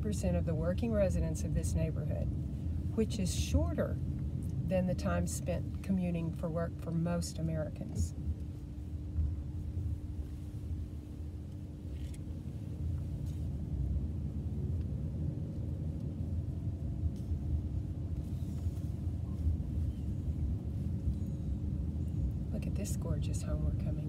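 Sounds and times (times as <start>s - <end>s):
car engine and tyre rumble: 0.0s - 24.0s
steady hum: 0.0s - 24.0s.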